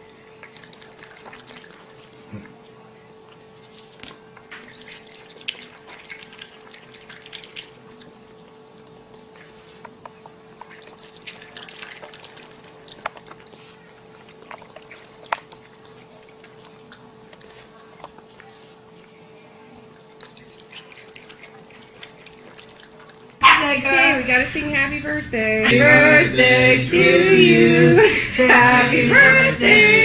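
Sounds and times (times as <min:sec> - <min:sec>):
steady hum: 0:00.0 - 0:30.0
animal chewing with wet smacking: 0:00.1 - 0:23.4.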